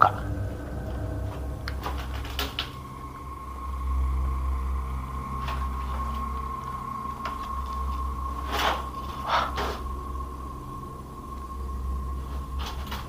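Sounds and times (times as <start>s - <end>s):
steady high tone: 0.0s - 13.0s.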